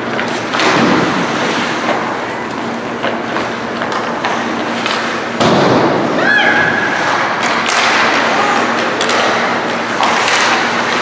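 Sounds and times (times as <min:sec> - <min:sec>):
hockey sticks and puck clicking: 0:01.8 - 0:05.2, 0:07.0 - 0:11.0
skates on ice: 0:06.9 - 0:11.0.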